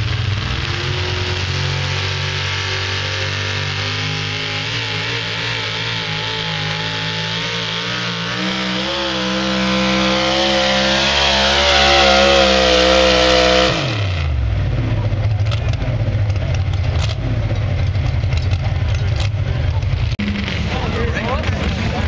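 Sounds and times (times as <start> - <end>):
truck engine at full throttle: 0.0 - 22.0
engine rough idle: 14.4 - 22.0.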